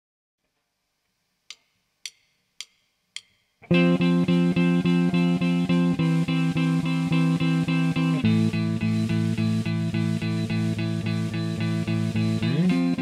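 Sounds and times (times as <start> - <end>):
electric guitar strumming chords: 3.6 - 13.0.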